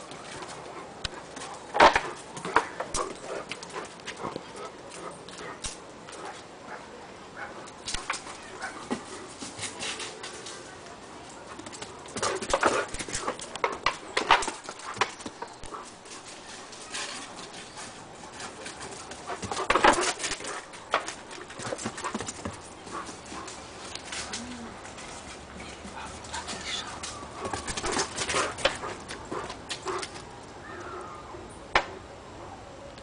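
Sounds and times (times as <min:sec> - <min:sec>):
dogs scuffling: 0:00.0 - 0:06.5, 0:07.6 - 0:30.5.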